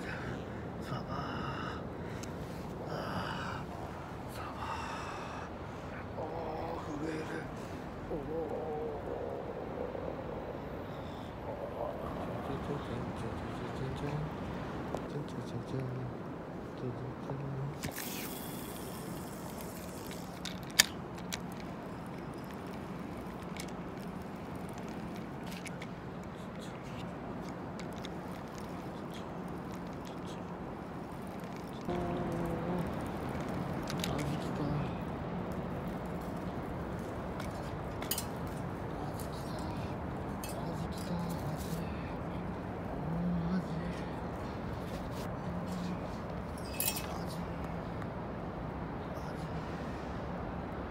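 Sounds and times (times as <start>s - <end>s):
city traffic hum: 0.0s - 50.9s
steady background noise: 0.0s - 50.9s
fishing tackle clicks and taps: 17.8s - 25.9s, 27.4s - 28.8s.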